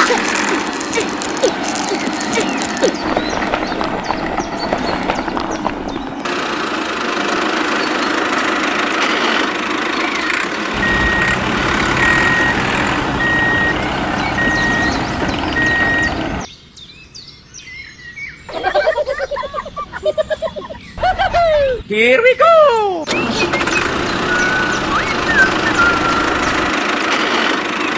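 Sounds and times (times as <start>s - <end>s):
drill bit grinding into gravel: 0.0s - 5.2s
low engine hum: 0.0s - 16.5s, 23.1s - 27.9s
reversing alarm beeps: 10.8s - 16.4s, 24.3s - 26.5s.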